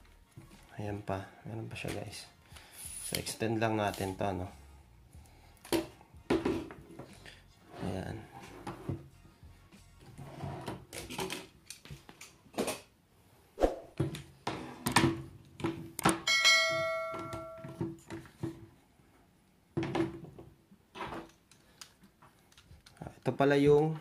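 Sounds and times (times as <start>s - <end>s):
bell-like ding: 16.3s - 17.8s.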